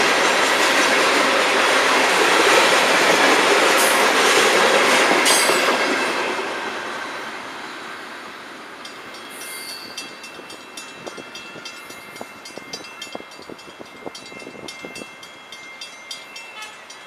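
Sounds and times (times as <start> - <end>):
freight train rumble: 0.0 - 17.0
railroad crossing bell ringing: 5.2 - 6.2, 8.6 - 17.0.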